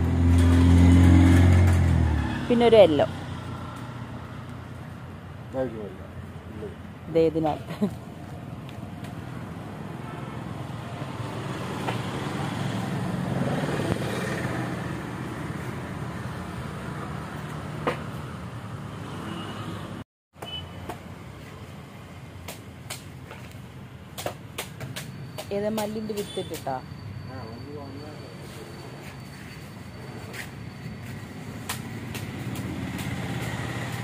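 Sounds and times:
vehicle passing: 0:00.0 - 0:06.0, 0:08.4 - 0:20.0, 0:31.1 - 0:34.0
road traffic rumble: 0:00.0 - 0:34.0.

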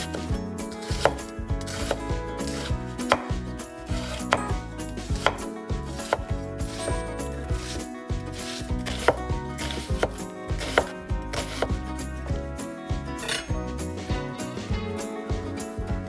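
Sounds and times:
knife chopping on cutting board: 0:00.8 - 0:11.8.

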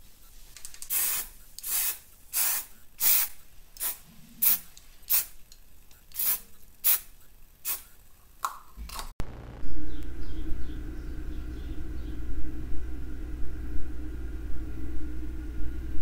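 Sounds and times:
aerosol spray hissing bursts: 0:00.9 - 0:05.4, 0:06.1 - 0:07.9.

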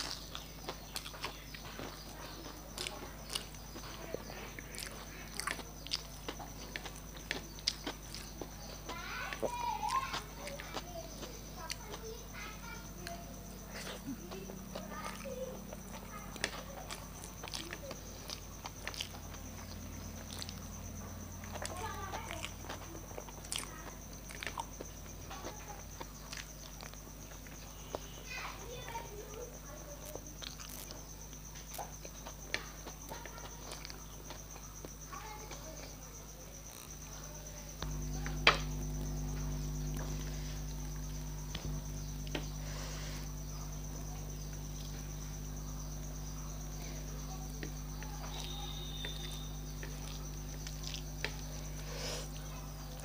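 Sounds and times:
person chewing: 0:00.0 - 0:12.1, 0:13.0 - 0:28.2, 0:30.0 - 0:35.0, 0:37.8 - 0:53.0
fingers squishing rice: 0:00.0 - 0:36.0, 0:36.6 - 0:53.0
mouth clicks and smacks: 0:30.4 - 0:31.0.

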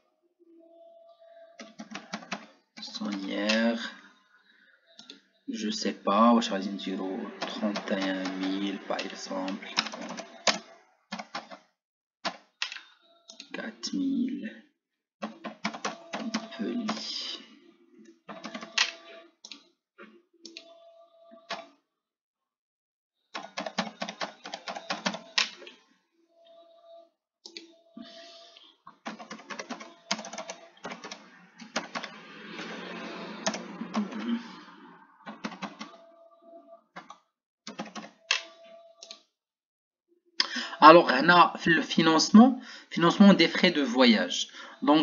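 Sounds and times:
computer keyboard typing: 0:01.6 - 0:03.7, 0:07.3 - 0:11.6, 0:15.2 - 0:17.2, 0:18.3 - 0:19.6, 0:23.4 - 0:25.7, 0:29.0 - 0:32.2, 0:33.3 - 0:34.5, 0:35.3 - 0:36.1, 0:37.0 - 0:39.2.

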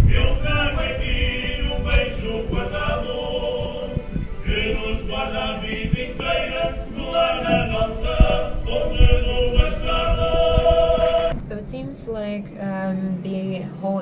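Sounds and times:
group of voices singing: 0:00.0 - 0:11.6
dull low thumps: 0:00.0 - 0:12.4.

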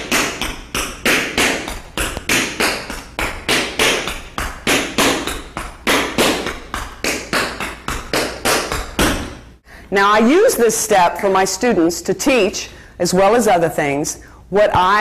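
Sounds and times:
tap shoes on hardwood floor: 0:00.0 - 0:09.5.

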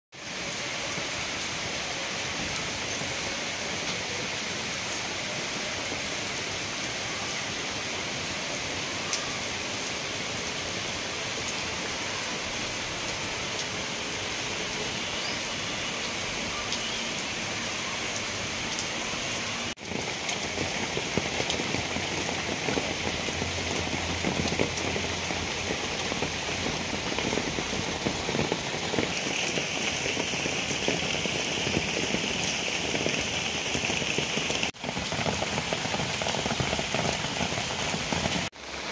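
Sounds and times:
rain falling on foliage and paving: 0:00.1 - 0:38.9
raindrops striking: 0:19.7 - 0:38.9.

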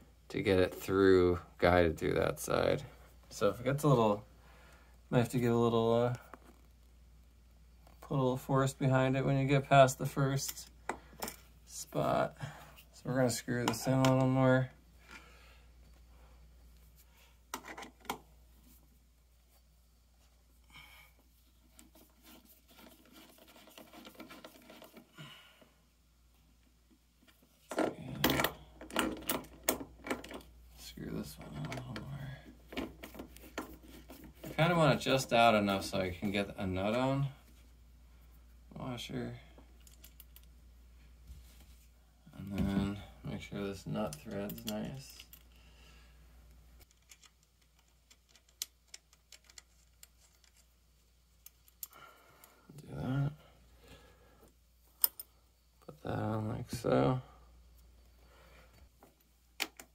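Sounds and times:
bolt threads scraping: 0:46.8 - 0:50.8.

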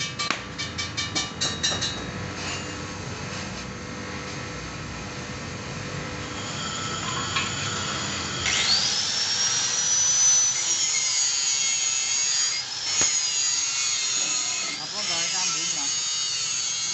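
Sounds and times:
rotary grinder grinding metal: 0:06.2 - 0:16.9.

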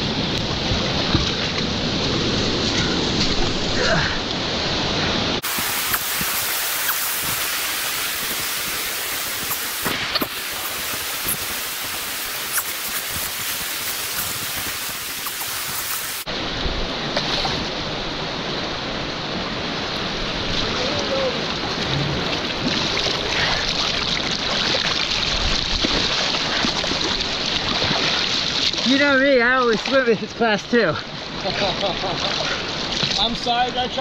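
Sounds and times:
river rushing over rocks: 0:00.0 - 0:30.4
small water splashes: 0:20.4 - 0:30.3, 0:31.1 - 0:33.8.

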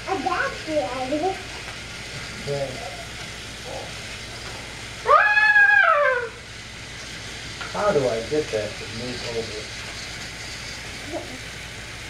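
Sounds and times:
toy train engines running on track: 0:00.0 - 0:12.0
high toy train whistle hoot: 0:05.0 - 0:06.4.

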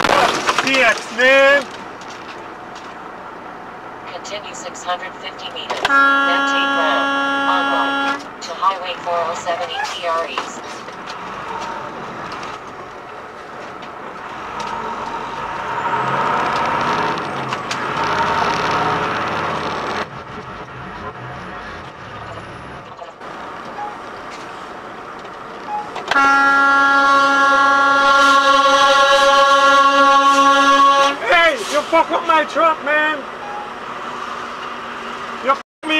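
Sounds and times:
vehicle engine and road noise: 0:00.0 - 0:35.9
loud vehicle horn: 0:05.7 - 0:08.4, 0:17.8 - 0:19.6, 0:26.1 - 0:31.6.

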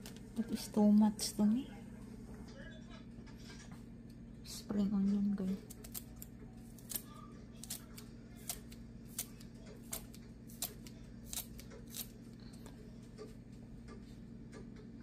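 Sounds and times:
scissors snipping spring onion: 0:05.6 - 0:12.1.

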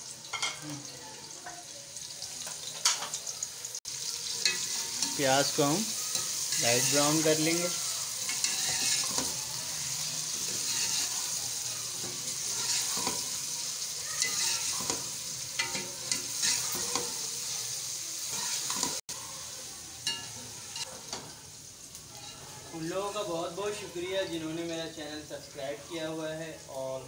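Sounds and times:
onions sizzling in hot oil: 0:00.0 - 0:27.0
metal ladle scraping a pot: 0:08.2 - 0:11.4, 0:12.0 - 0:13.4, 0:14.2 - 0:17.2, 0:18.3 - 0:19.0.

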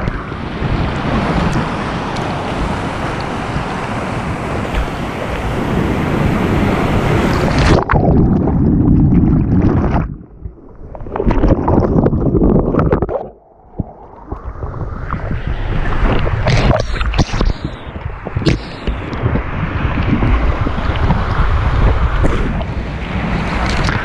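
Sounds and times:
whitewater rushing and splashing: 0:00.0 - 0:10.1, 0:14.0 - 0:24.0
water washing across microphone: 0:00.0 - 0:24.0.

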